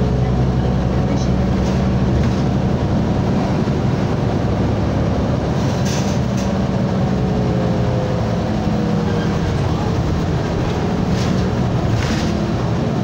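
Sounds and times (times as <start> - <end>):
bus engine hum and road noise: 0.0 - 13.0.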